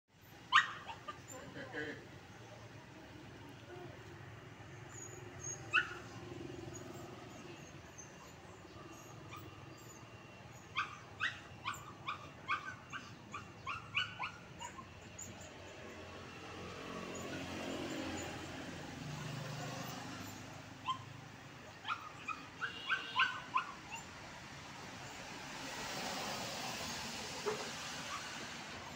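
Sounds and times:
traffic rumble: 0.1s - 28.9s
small dog yipping: 0.2s - 1.4s, 4.8s - 15.5s, 19.2s - 24.1s, 27.5s - 28.4s.

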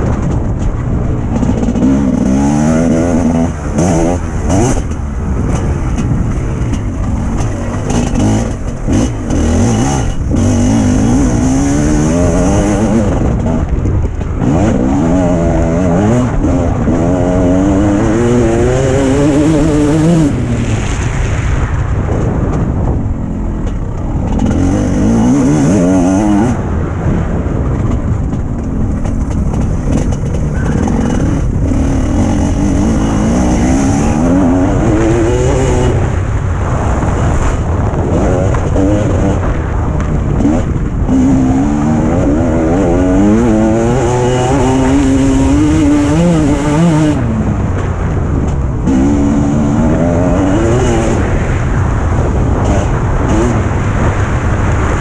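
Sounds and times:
motocross bike engine revving: 0.0s - 21.3s, 22.6s - 55.0s.

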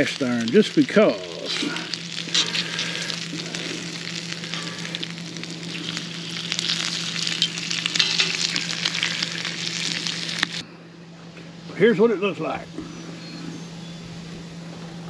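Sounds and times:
bacon sizzling and popping: 0.0s - 10.6s.

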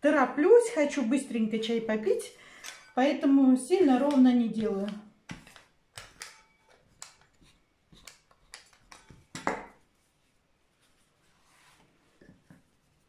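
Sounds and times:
hands working dough: 3.7s - 13.0s.

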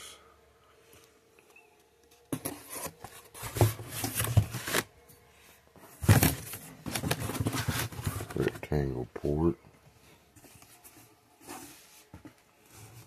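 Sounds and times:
cardboard rustling and scraping: 2.2s - 5.0s, 5.7s - 8.8s, 10.3s - 13.0s.

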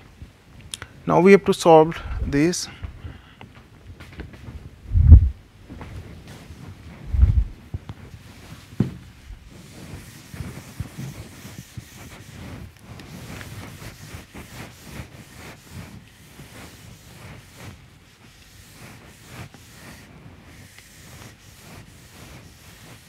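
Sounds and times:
eraser rubbing on whiteboard: 7.4s - 23.0s.

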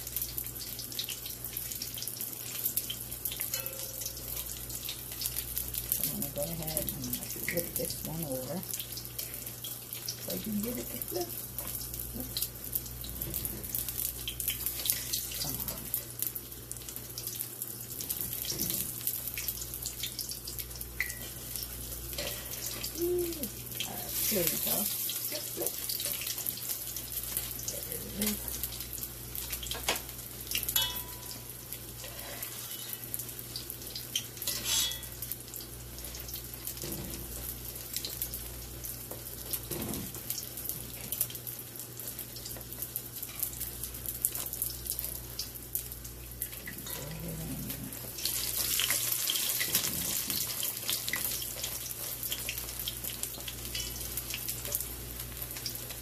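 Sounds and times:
fritters sizzling in hot oil: 0.0s - 56.0s
metal fork clinking on pot: 3.5s - 4.2s, 30.8s - 31.4s, 34.5s - 35.1s.

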